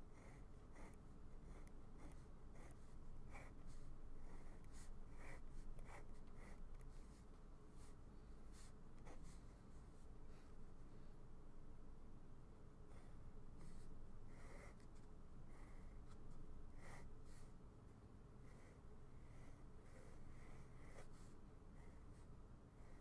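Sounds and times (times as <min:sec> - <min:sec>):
pen scratching on paper: 0:00.1 - 0:07.2, 0:18.5 - 0:22.2.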